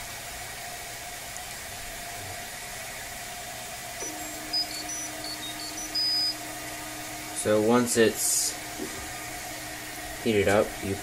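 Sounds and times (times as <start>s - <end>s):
motor whine: 0.0s - 11.0s
three d printer fan humming: 0.0s - 11.0s
short high electronic beep: 4.0s - 6.4s.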